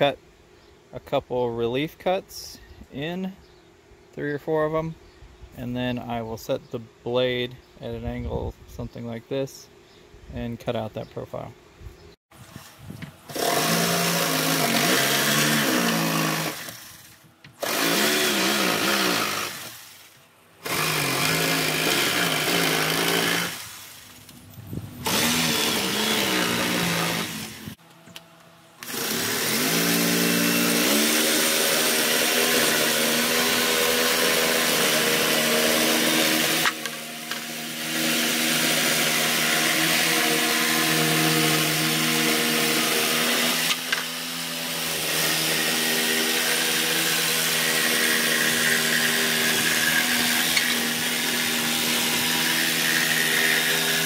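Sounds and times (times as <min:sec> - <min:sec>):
jigsaw cutting plywood: 0:13.3 - 0:19.8, 0:20.6 - 0:23.9, 0:25.0 - 0:27.8, 0:28.8 - 0:54.0.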